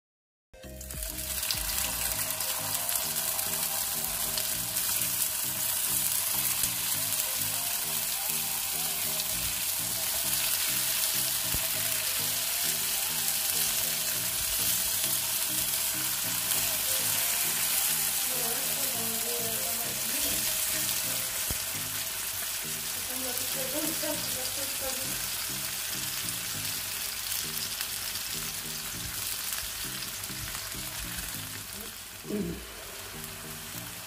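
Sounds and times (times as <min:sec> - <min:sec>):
food sizzling in hot oil: 0:00.6 - 0:34.0.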